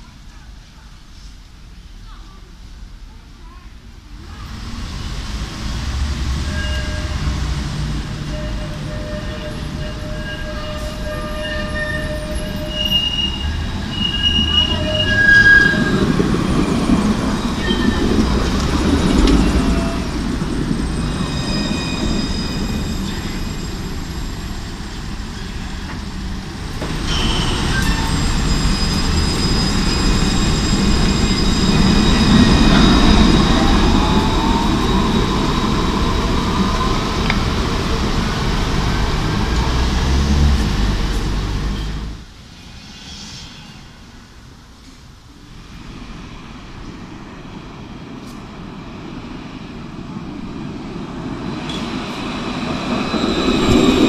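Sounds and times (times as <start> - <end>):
tram wheels rumbling on rail: 0.0 - 54.0
high-pitched wheel squealing: 6.5 - 7.4, 8.1 - 18.3, 27.0 - 37.3.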